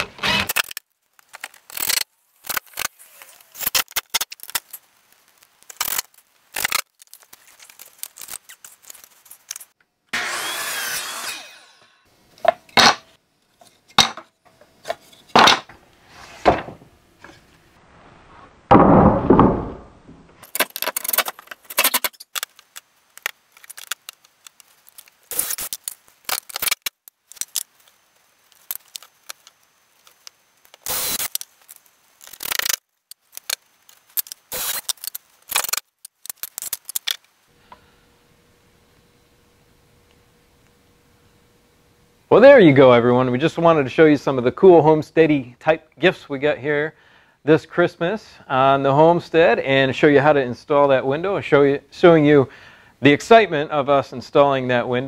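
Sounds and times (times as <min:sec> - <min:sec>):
cordless drill driving screws: 0:00.0 - 0:00.7, 0:30.8 - 0:31.4, 0:34.5 - 0:34.9
mitre saw cutting boards: 0:00.0 - 0:00.7, 0:10.1 - 0:13.0
wood knocking and clattering: 0:16.4 - 0:17.4, 0:18.7 - 0:20.4.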